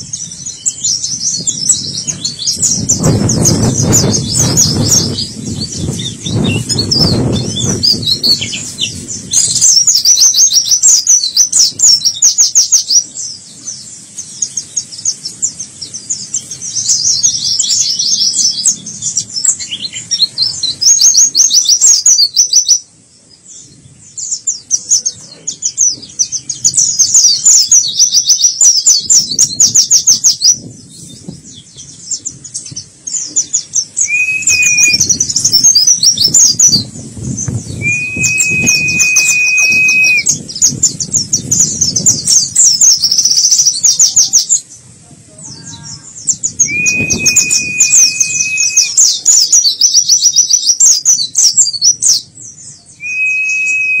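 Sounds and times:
bird singing chattering song: 0:00.0 - 0:54.0
high whistle note: 0:37.8 - 0:40.3, 0:46.6 - 0:49.0, 0:53.1 - 0:54.0.

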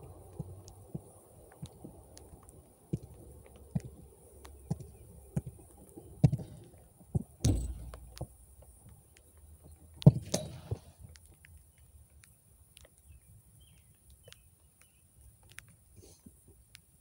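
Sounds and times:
soccer ball kicked thud: 0:07.4 - 0:08.3
faint ticks: 0:07.9 - 0:17.0.

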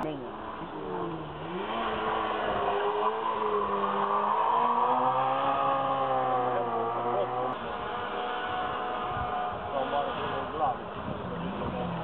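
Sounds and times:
race car engine revving: 0:00.4 - 0:12.0.

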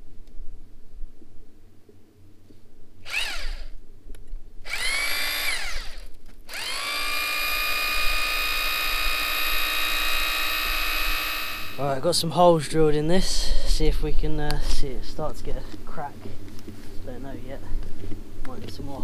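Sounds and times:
power drill boring into stone: 0:03.0 - 0:03.7, 0:04.6 - 0:11.8.

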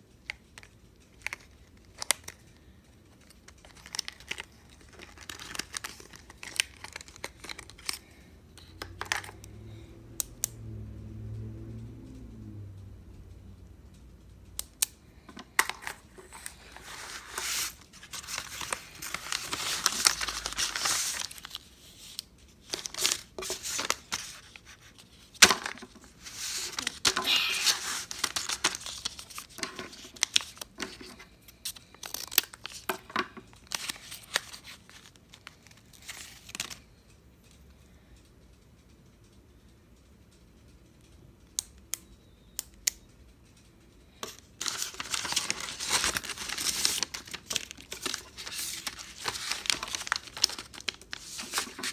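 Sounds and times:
paper tearing and crinkling: 0:16.3 - 0:31.0, 0:44.6 - 0:51.9.

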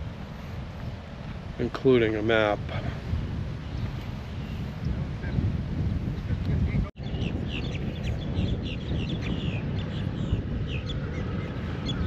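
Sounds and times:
wind rumble on microphone: 0:00.0 - 0:12.0
birds chirping: 0:03.6 - 0:12.0.

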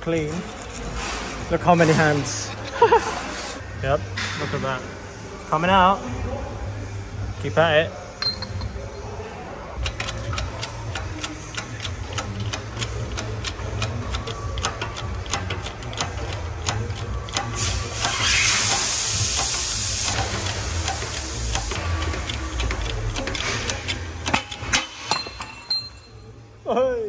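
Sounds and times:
hydraulic pump clicks: 0:09.8 - 0:25.4
hiss: 0:17.6 - 0:21.8.

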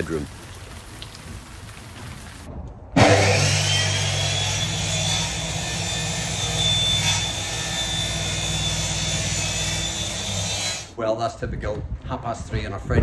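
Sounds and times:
electric drill whining: 0:03.0 - 0:10.9.

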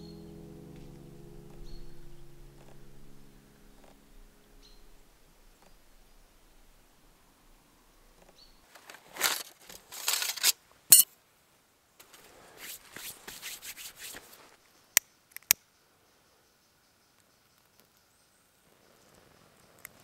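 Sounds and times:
kindling rustling and scraping: 0:08.7 - 0:10.6.

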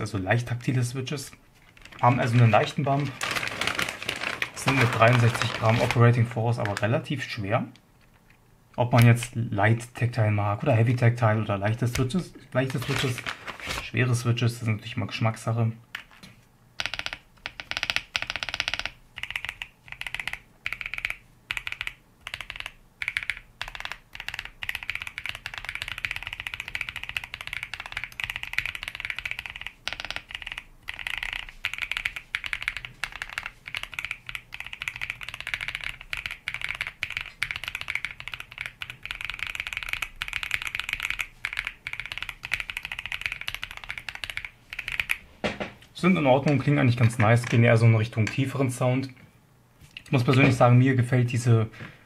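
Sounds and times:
typing on mechanical keyboard: 0:16.8 - 0:45.2.

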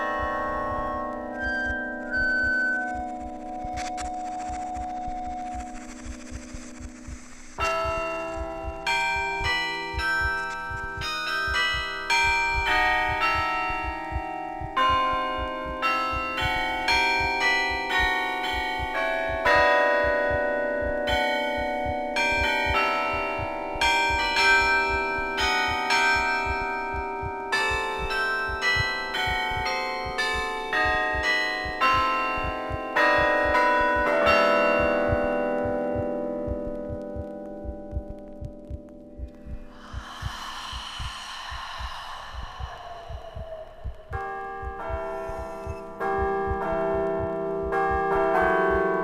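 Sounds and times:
carillon bells ringing: 0:00.0 - 0:03.3, 0:07.6 - 0:36.5.

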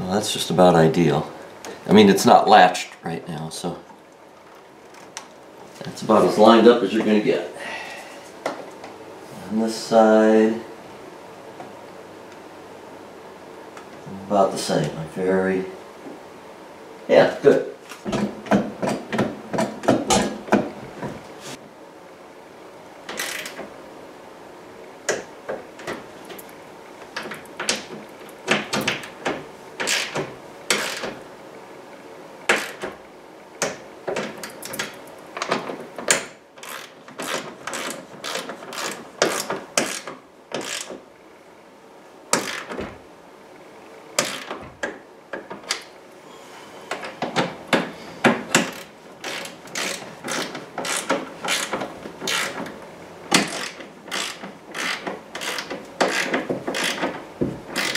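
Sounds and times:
socket ratchet clicking: 0:48.6 - 0:51.7, 0:53.4 - 0:57.1.

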